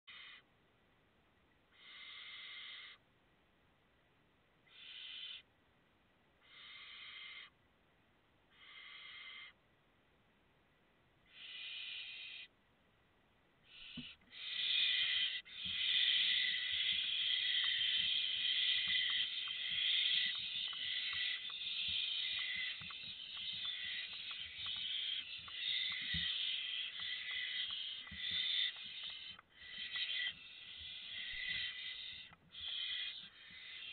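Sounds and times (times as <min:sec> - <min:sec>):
owl chicks hissing begging calls: 0:01.7 - 0:03.0, 0:04.7 - 0:05.4, 0:06.4 - 0:07.5, 0:08.5 - 0:09.6, 0:11.3 - 0:12.5, 0:13.7 - 0:33.9
owl scrabbling in nestbox: 0:13.8 - 0:33.9.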